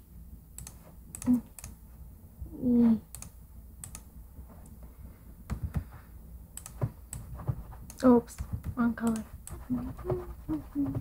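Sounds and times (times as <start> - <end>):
mouse and keyboard clicks: 3.1 - 4.8, 6.6 - 11.0.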